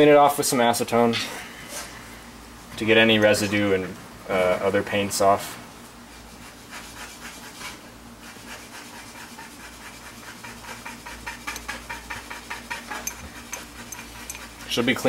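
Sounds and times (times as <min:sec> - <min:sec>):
brush knocking against glass jar: 0:11.4 - 0:14.7.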